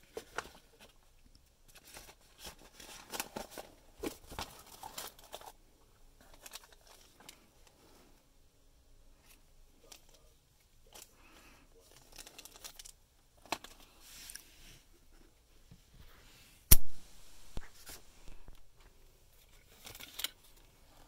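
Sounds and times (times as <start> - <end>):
plastic packaging crinkling: 1.7 - 5.6, 11.8 - 13.9, 19.6 - 20.7.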